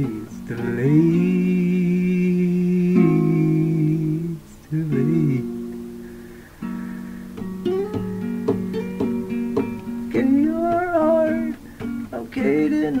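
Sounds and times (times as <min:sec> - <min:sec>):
person singing: 0:00.0 - 0:06.1, 0:08.8 - 0:13.0
acoustic guitar strumming: 0:00.0 - 0:13.0.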